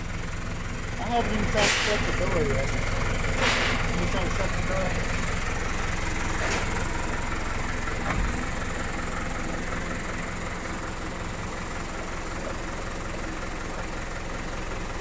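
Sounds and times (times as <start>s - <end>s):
engine idling: 0.0s - 15.0s
truck cab door shutting: 8.0s - 8.5s.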